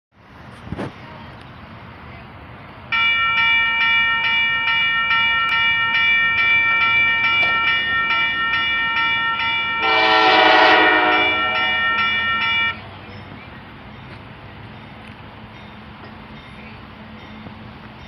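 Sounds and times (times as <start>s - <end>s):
crossing bells ringing: 2.9s - 18.0s
locomotive air horn: 9.8s - 12.0s.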